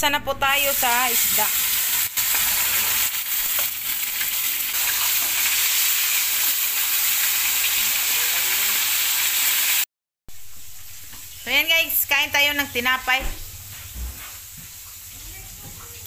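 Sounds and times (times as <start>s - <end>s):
fish sizzling in hot oil: 0.6s - 12.1s.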